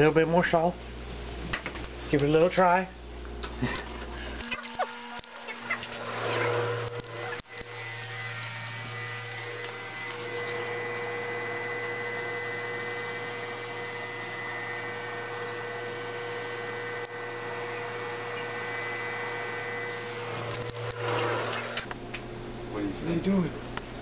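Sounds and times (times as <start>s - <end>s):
machine hum and hiss: 4.4s - 21.9s.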